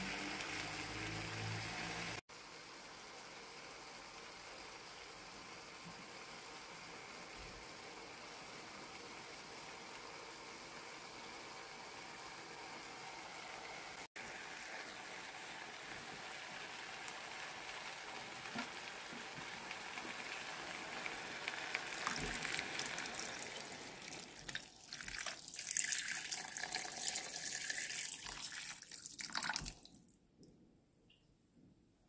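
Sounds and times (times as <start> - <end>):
meat and onions sizzling in a pan: 0.0 - 28.3
water pouring and splashing: 21.0 - 30.2.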